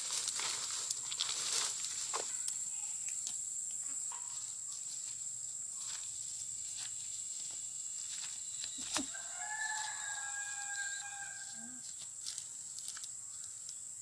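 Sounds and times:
insects droning: 0:00.0 - 0:14.0
rooster crowing: 0:09.0 - 0:11.8.

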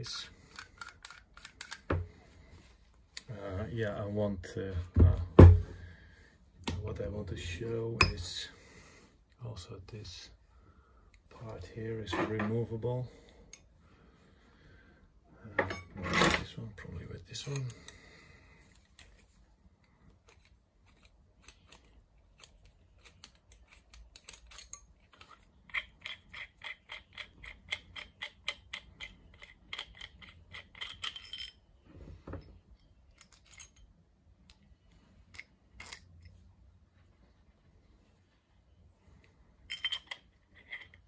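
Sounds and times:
metallic clicks and clinks: 0:20.2 - 0:31.6, 0:32.4 - 0:36.4, 0:39.7 - 0:41.0.

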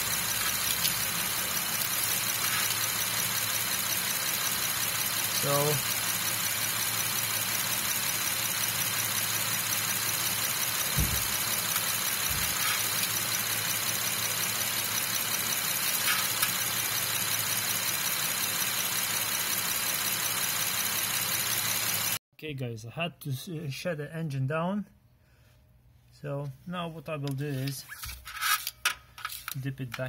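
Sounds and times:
car engine idling: 0:00.0 - 0:22.2.

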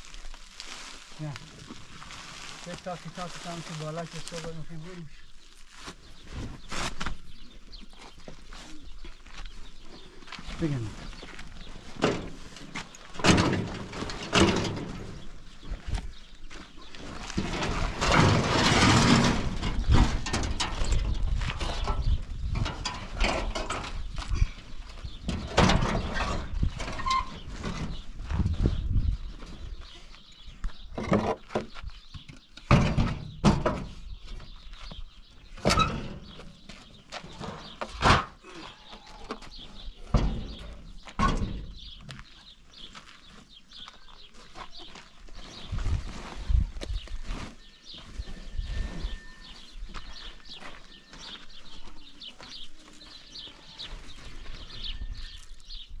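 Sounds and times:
tarp rustling: 0:00.0 - 0:07.3, 0:45.2 - 0:48.4
wood scraping and scuffing: 0:00.0 - 0:20.2, 0:23.0 - 0:55.8
small birds chirping: 0:00.1 - 0:17.7, 0:19.8 - 0:56.0.

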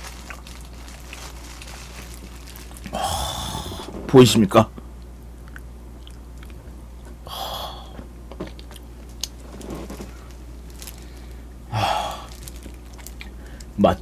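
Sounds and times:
gloved hand handling food: 0:00.0 - 0:04.0, 0:08.4 - 0:11.5, 0:12.1 - 0:13.8
steady low hum: 0:00.0 - 0:14.0.

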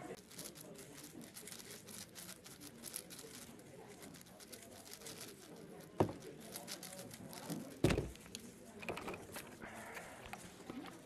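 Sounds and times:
speedcube layers clicking: 0:00.2 - 0:03.5.

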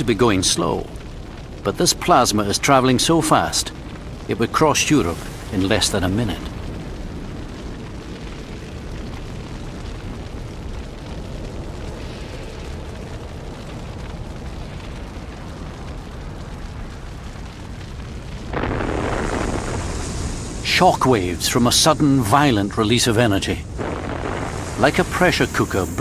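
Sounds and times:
low rumble: 0:00.8 - 0:26.0
loud blast of noise: 0:23.6 - 0:26.0.

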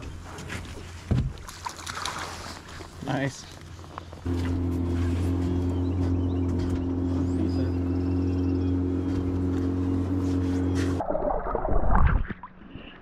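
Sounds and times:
outboard motor idling: 0:03.7 - 0:11.0
birds chirping: 0:03.8 - 0:11.0.

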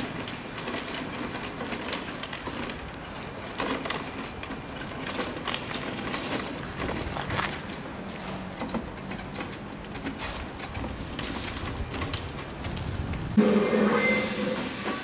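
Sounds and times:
metal cart rattling over pavement: 0:00.0 - 0:15.0.

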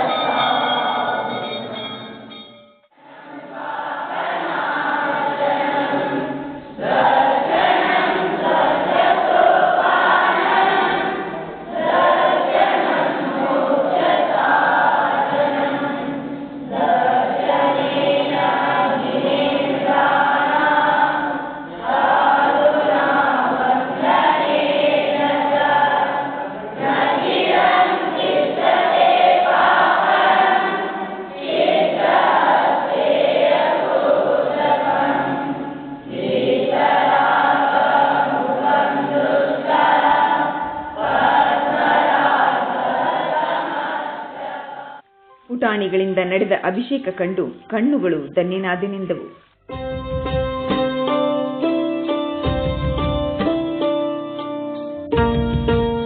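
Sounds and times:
children chanting in unison: 0:03.0 - 0:45.0.

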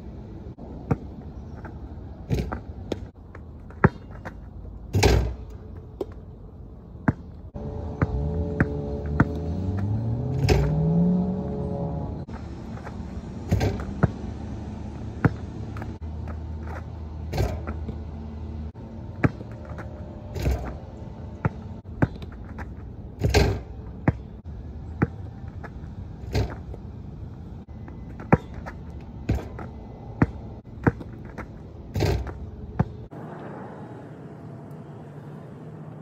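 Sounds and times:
basketball bouncing on plastic court: 0:00.8 - 0:01.7, 0:02.3 - 0:04.4, 0:07.0 - 0:07.3, 0:07.9 - 0:10.7, 0:12.8 - 0:14.2, 0:15.2 - 0:18.0, 0:19.2 - 0:19.8, 0:21.4 - 0:25.7, 0:27.8 - 0:33.0
ball crashing on rim and backboard: 0:02.3 - 0:03.1, 0:03.8 - 0:06.2, 0:10.3 - 0:11.0, 0:13.4 - 0:14.2, 0:17.3 - 0:18.0, 0:19.2 - 0:20.8, 0:21.4 - 0:24.2, 0:26.3 - 0:26.7, 0:28.2 - 0:33.0.

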